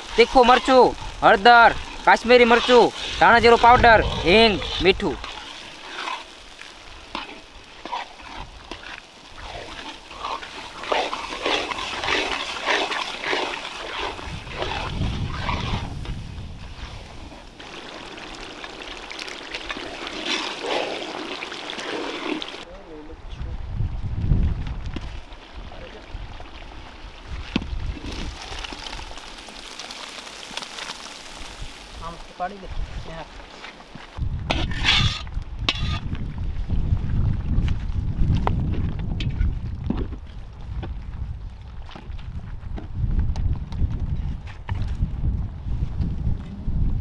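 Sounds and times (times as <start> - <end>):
masala frying in oil: 0.0 - 22.7, 24.8 - 36.5
metal ladle scraping pan: 0.2 - 15.9, 34.5 - 36.1.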